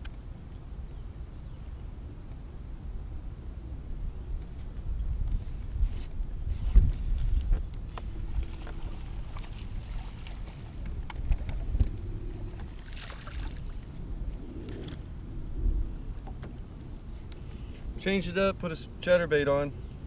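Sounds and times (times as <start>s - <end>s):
wind and water rumble: 0.0s - 20.0s
short splash: 12.7s - 13.9s.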